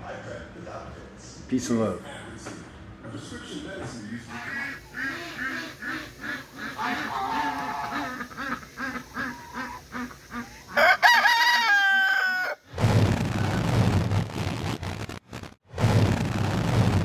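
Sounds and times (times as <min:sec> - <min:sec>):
rooster clucking: 0:04.3 - 0:12.6
rooster crowing: 0:06.6 - 0:09.8, 0:10.4 - 0:12.7
harsh logo sound effect with rumble: 0:12.7 - 0:17.0.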